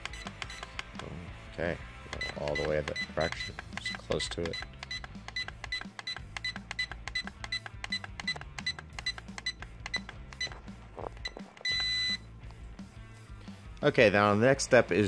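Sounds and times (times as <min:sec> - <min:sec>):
short high beeps: 0:11.2 - 0:12.3
long beep: 0:11.7 - 0:12.3.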